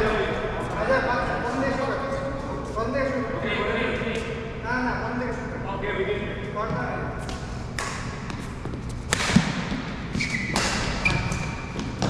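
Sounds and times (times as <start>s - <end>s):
racket hitting shuttlecock: 7.3s - 12.0s
shoe squeaks on court floor: 10.1s - 12.0s.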